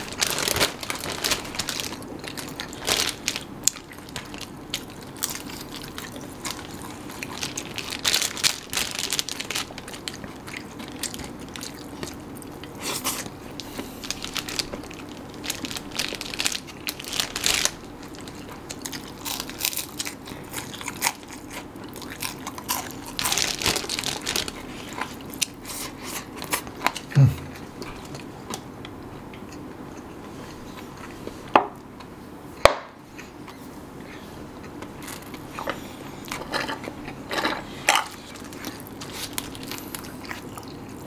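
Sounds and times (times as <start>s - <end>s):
faint steady hum: 0.0s - 41.0s
chewing and biting: 18.2s - 28.6s.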